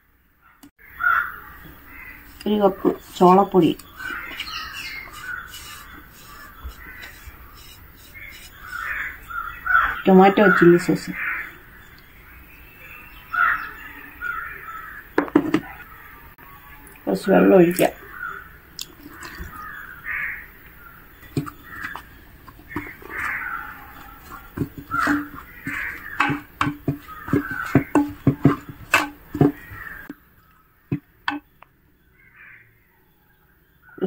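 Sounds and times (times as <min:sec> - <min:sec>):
crows cawing: 0:00.8 - 0:02.4, 0:03.9 - 0:11.9, 0:13.3 - 0:16.2, 0:19.1 - 0:20.5, 0:21.5 - 0:22.0, 0:22.7 - 0:30.1, 0:32.2 - 0:32.8
ladle knocking and scraping clay pot: 0:01.6 - 0:10.0, 0:19.0 - 0:19.7, 0:21.2 - 0:30.1, 0:30.9 - 0:31.5.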